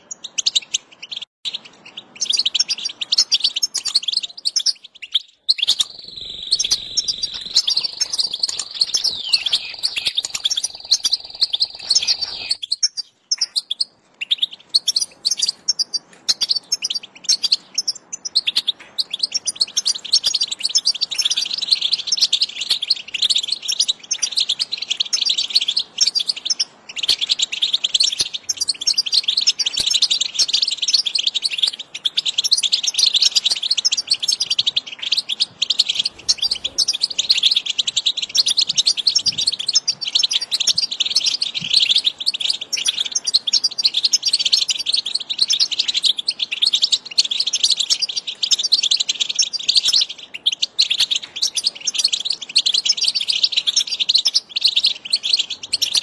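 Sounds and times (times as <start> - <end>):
goldfinch twittering: 0.0 - 56.0.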